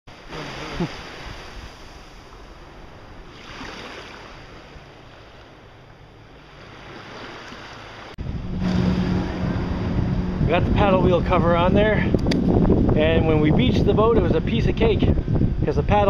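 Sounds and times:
small waves washing on sand: 0.1s - 9.1s
wind buffeting microphone: 8.2s - 16.0s.

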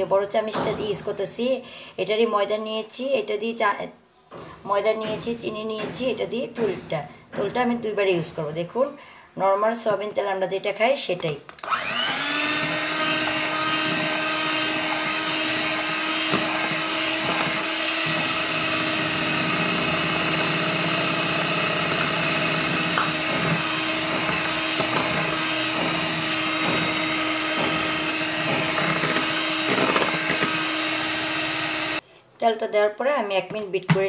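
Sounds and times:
electric hand mixer whipping batter: 11.6s - 32.0s.

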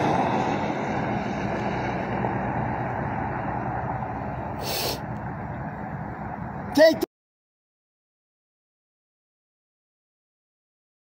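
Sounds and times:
traffic: 0.0s - 7.1s
vehicle engine rumbling: 0.0s - 7.1s
short sharp hiss: 4.6s - 5.0s.

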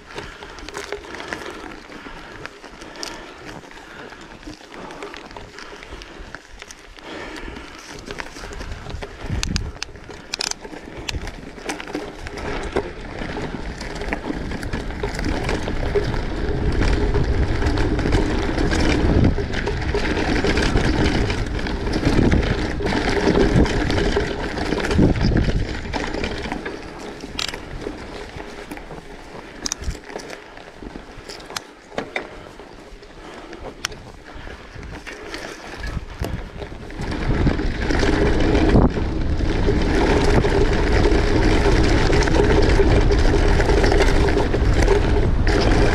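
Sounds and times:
wind buffeting microphone: 0.0s - 31.6s, 32.3s - 45.9s
clicks and rattles: 0.0s - 32.6s, 33.2s - 45.9s.

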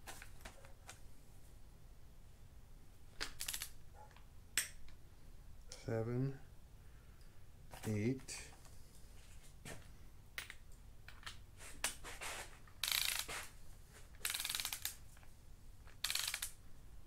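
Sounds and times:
ratchet wrench clicking: 12.8s - 13.4s, 14.2s - 15.0s, 16.0s - 16.6s.

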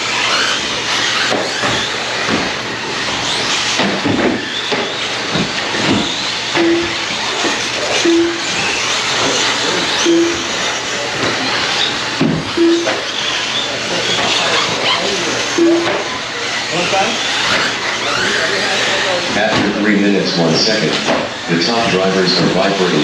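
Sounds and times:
short beeps: 6.6s - 7.1s, 8.0s - 8.6s, 10.0s - 10.7s, 12.6s - 13.1s, 15.6s - 16.1s.

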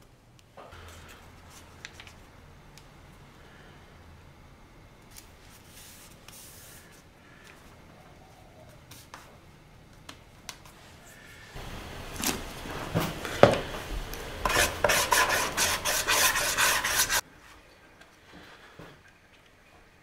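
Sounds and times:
brush scraping on wooden panel: 14.4s - 17.2s.

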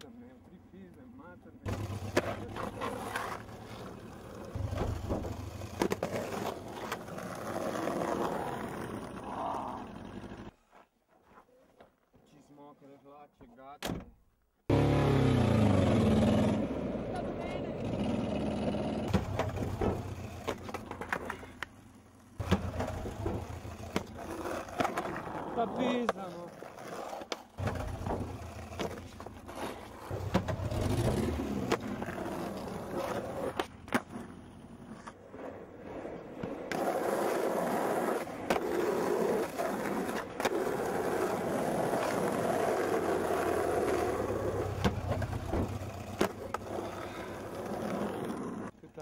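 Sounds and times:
skateboard clicks and knocks: 1.6s - 10.5s, 18.0s - 48.8s
small car driving: 1.6s - 10.6s, 14.7s - 25.6s, 27.5s - 36.0s, 36.6s - 48.8s
skateboard rolling on asphalt: 1.6s - 12.2s, 14.7s - 49.0s.

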